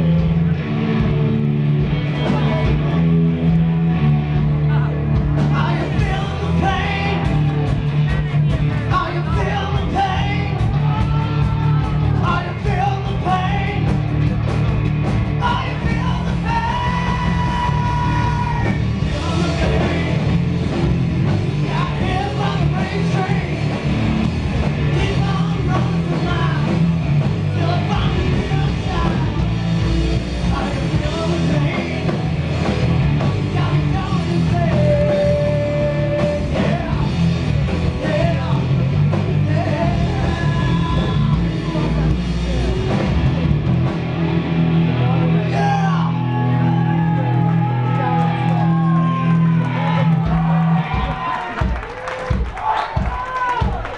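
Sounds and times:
hard rock band playing: 0.0s - 53.9s
man singing and shouting: 4.5s - 14.0s, 15.3s - 20.8s, 21.5s - 24.0s, 24.7s - 29.8s, 30.4s - 32.3s, 33.1s - 43.0s, 45.0s - 50.1s.

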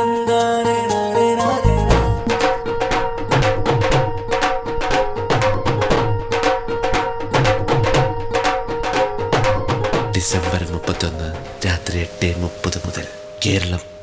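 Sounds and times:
music with quick drum beat: 1.6s - 11.6s.

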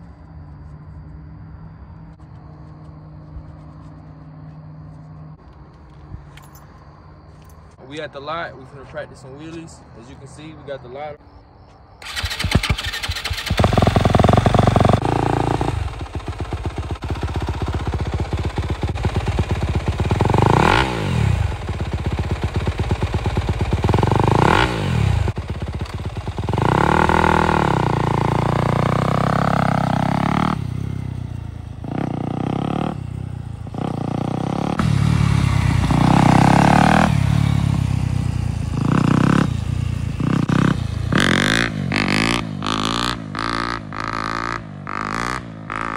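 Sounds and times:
dirt bike engine revving: 12.0s - 31.2s, 31.8s - 45.9s.

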